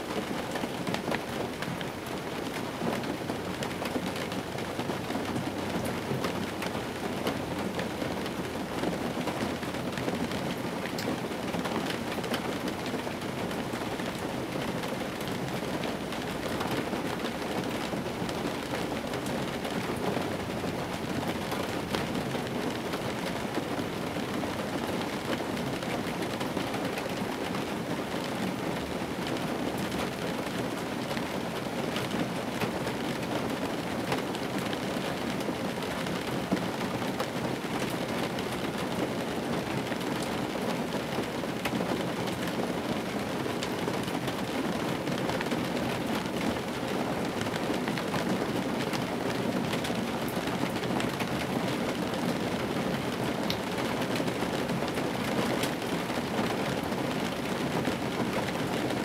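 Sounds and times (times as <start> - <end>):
rain on car roof: 0.0 - 59.0.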